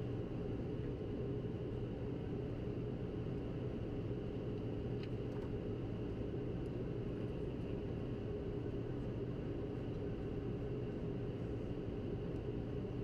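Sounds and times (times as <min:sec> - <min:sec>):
constant hums: 0:00.0 - 0:13.0
jet cockpit engine and airflow noise: 0:00.0 - 0:13.0
faint tick: 0:04.6 - 0:05.5.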